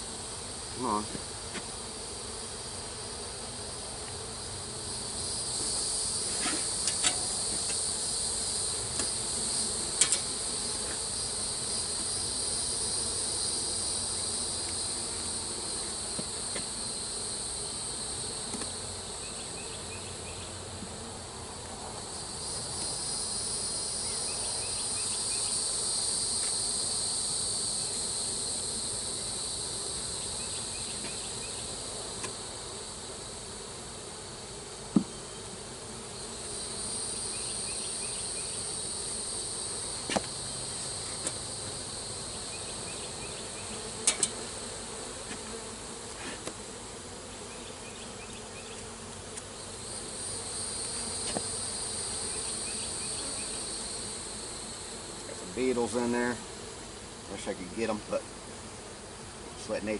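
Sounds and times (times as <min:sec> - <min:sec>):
honeybees buzzing: 0:00.0 - 0:59.9
high-pitched insect chorus: 0:04.4 - 0:20.6, 0:22.0 - 0:33.3, 0:36.2 - 0:44.4, 0:47.3 - 0:58.3.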